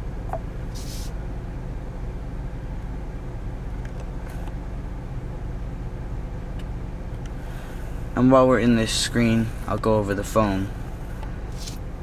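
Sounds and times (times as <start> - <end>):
car engine idling hum: 0.0 - 12.0
brief hiss: 0.7 - 1.2.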